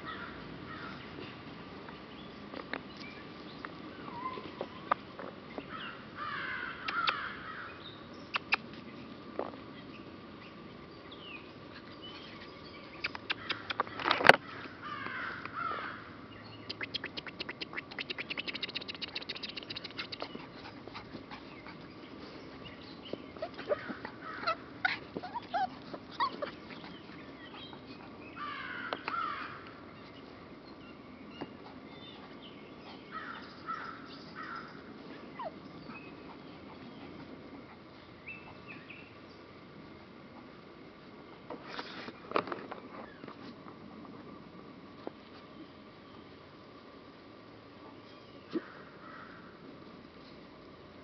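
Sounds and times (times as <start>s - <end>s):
puppies digging in dry dirt: 0.1s - 5.8s, 8.2s - 14.8s, 16.7s - 45.8s
crows cawing: 6.2s - 7.7s, 14.4s - 16.1s, 28.4s - 29.6s, 48.6s - 49.4s.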